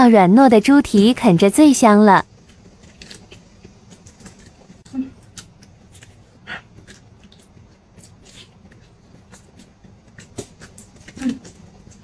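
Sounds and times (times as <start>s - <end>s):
chewing mouth sounds: 2.4s - 12.0s.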